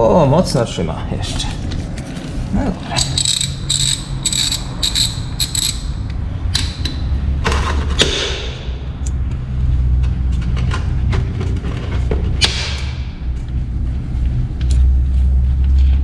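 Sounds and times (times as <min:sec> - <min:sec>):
ratchet wrench clicking: 0:02.9 - 0:07.0.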